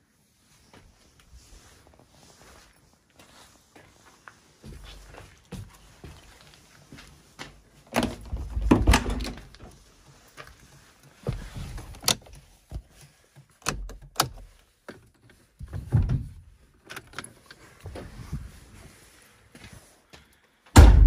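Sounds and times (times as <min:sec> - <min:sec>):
sharp clicks and dull knocks: 0:10.7 - 0:16.2.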